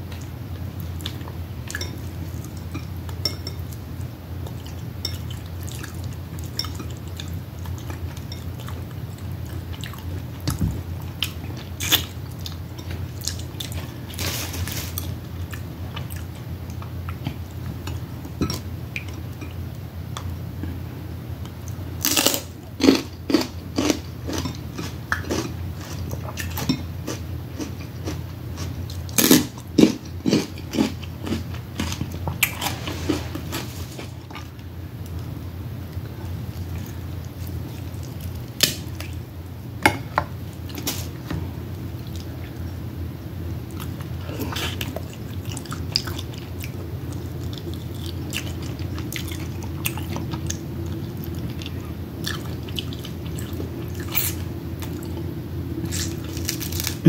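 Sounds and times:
steady low hum: 0:00.0 - 0:57.0
chewing: 0:04.4 - 0:19.6, 0:43.7 - 0:57.0.

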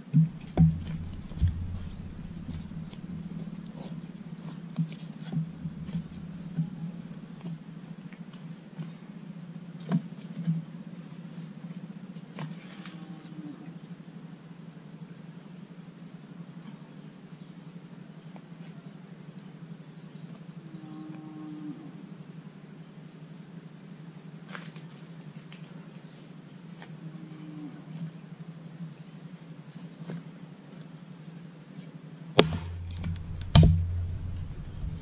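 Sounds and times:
axe striking log: 0:00.2 - 0:03.9, 0:05.2 - 0:06.8, 0:32.4 - 0:35.0
low hum: 0:00.2 - 0:04.5, 0:05.2 - 0:07.4, 0:32.4 - 0:35.0.

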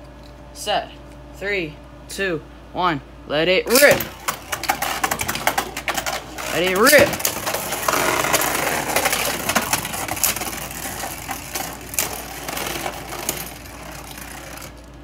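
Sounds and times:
spinning tops scraping plastic: 0:03.7 - 0:15.0.

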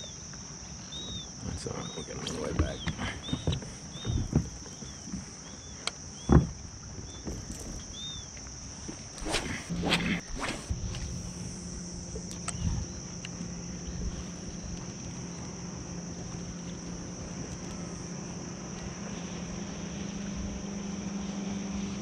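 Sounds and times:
low motor hum: 0:09.0 - 0:22.0.

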